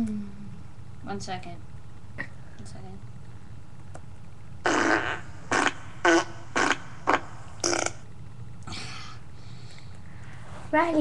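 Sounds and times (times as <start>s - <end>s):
fart sounds: 4.6s - 8.1s.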